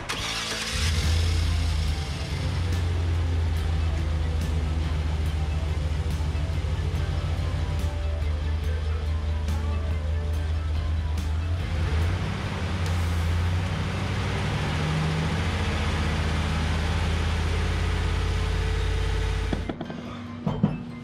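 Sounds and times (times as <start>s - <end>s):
truck engine running: 0.0s - 19.8s.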